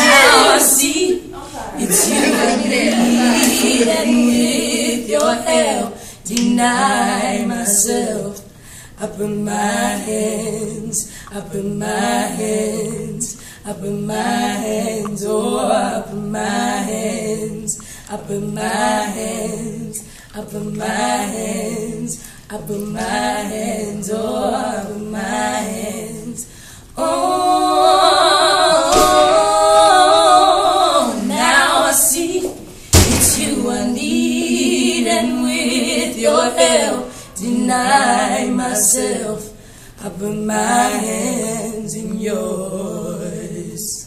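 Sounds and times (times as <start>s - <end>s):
women singing a cappella: 0.0s - 44.0s.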